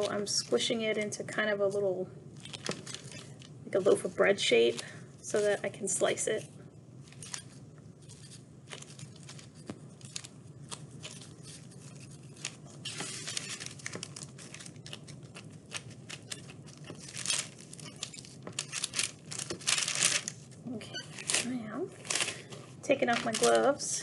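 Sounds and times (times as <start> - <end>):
paper crinkling: 2.4 - 5.7, 7.0 - 23.9
gloves peeling off sticky clay: 7.0 - 23.8.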